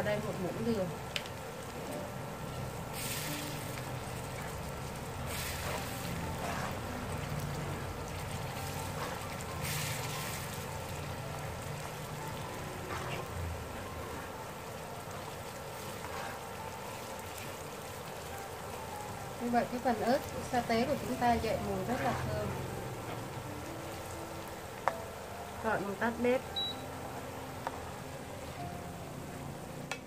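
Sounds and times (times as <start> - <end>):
chili oil sizzling in a pan: 0.0 - 30.0
metal spoon stirring swishes: 3.0 - 11.1, 15.2 - 18.6, 21.8 - 22.6.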